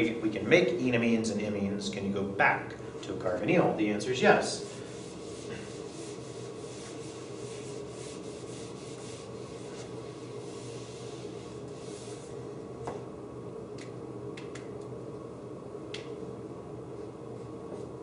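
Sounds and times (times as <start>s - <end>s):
eraser wiping whiteboard: 4.3s - 12.4s.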